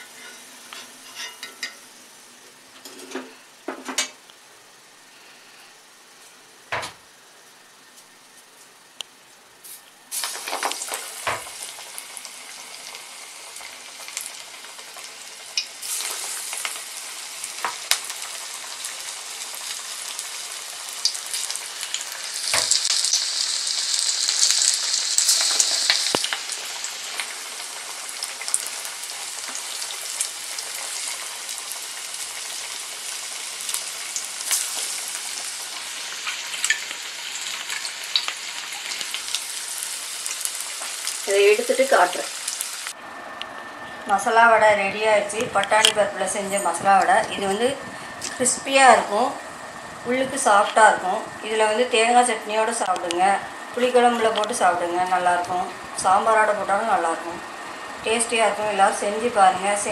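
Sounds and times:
fritters sizzling in hot oil: 0.0 - 43.0
oil popping and crackling: 10.1 - 43.0.

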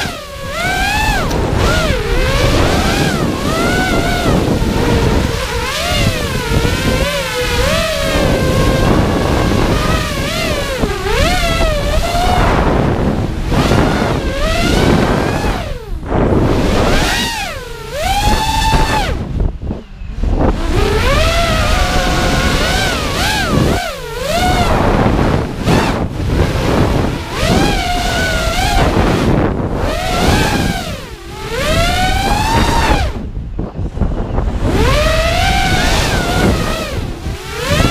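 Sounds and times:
drone motors whining: 0.0 - 37.9
wind rush on microphone: 0.0 - 37.9.

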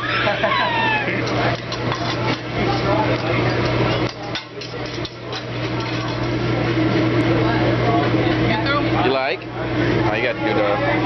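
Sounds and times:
metal spatulas scraping griddle: 1.1 - 6.4.

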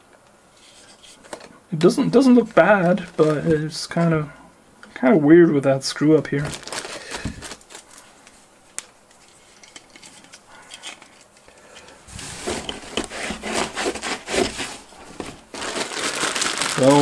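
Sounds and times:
rustling and rubbing in foam: 12.1 - 17.0.

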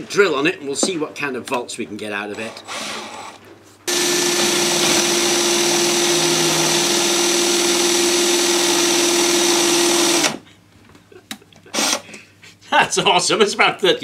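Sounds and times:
cordless drill running: 2.7 - 10.4, 11.7 - 12.0.

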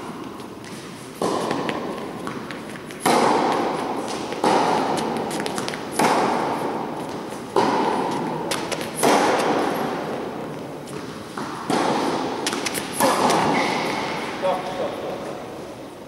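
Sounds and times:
tennis balls bouncing: 0.0 - 15.5
tennis balls hit by rackets: 0.0 - 15.8.

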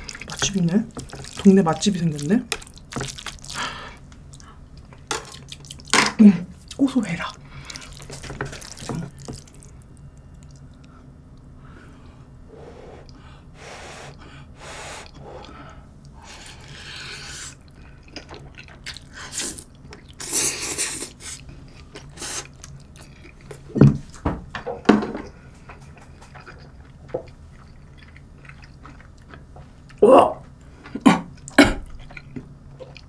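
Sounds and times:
chewing with wet mouth noises: 0.0 - 5.9, 6.6 - 11.5, 15.0 - 23.8, 25.3 - 33.0
person slurping noodles: 12.5 - 15.5.

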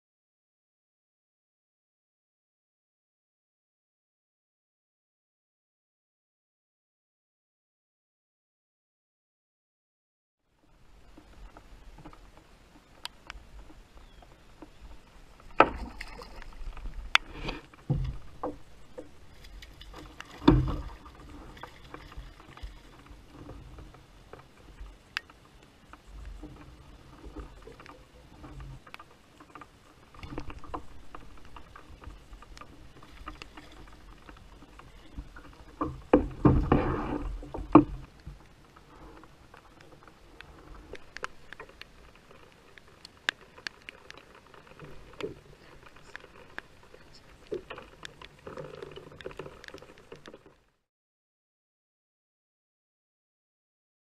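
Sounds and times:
knocks and rustling on plastic kayak: 10.9 - 50.6.

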